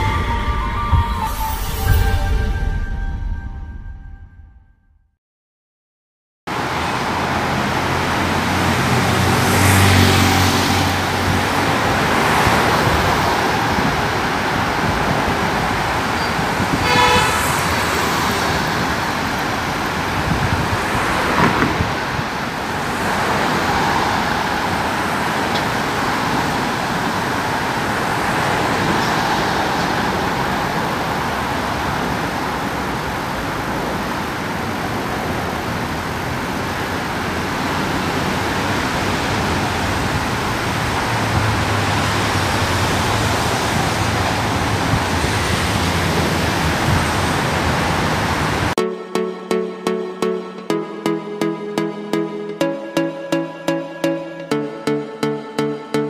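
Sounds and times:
cars passing by: 0:06.5 - 0:48.8
traffic hum: 0:06.5 - 0:48.8
car horn toot: 0:16.2 - 0:19.0.

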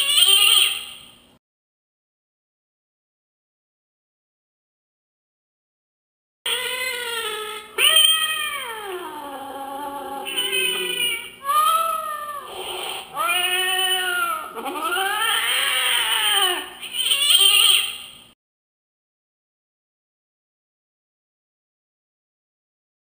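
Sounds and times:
recorded cat yowls: 0:07.8 - 0:17.9.

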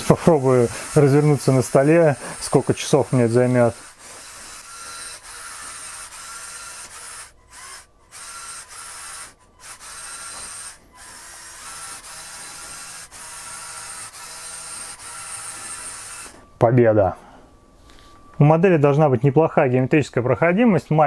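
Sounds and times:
toy truck motors whirring: 0:00.0 - 0:16.4.

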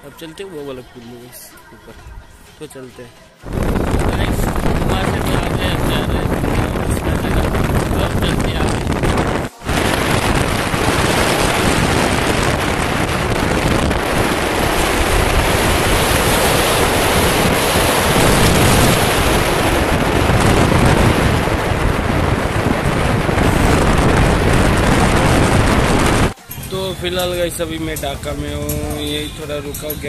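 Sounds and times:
wind buffeting microphone: 0:03.4 - 0:26.4
motorcycle road and motor noise: 0:03.4 - 0:30.0.

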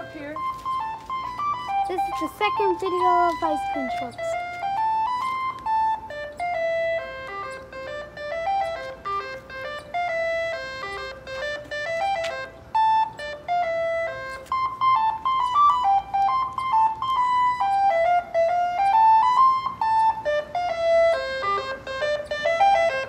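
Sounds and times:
ice cream truck jingle: 0:00.0 - 0:23.0.

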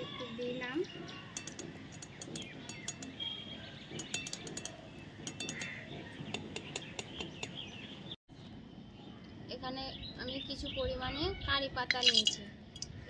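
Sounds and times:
birds chirping: 0:00.0 - 0:13.0
nuts crackling in hot oil: 0:12.0 - 0:12.9.

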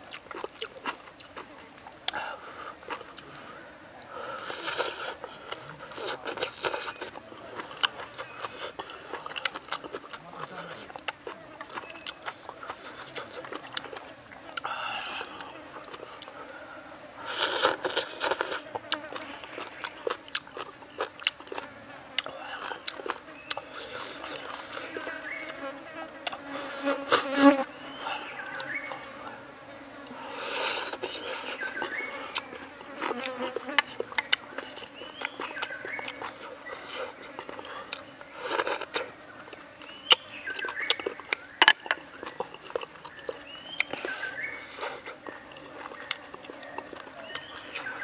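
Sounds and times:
flying insects buzzing: 0:21.4 - 0:42.2.

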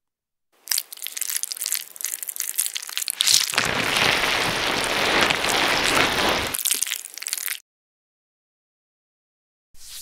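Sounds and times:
dense crackling hiss: 0:00.8 - 0:07.6.

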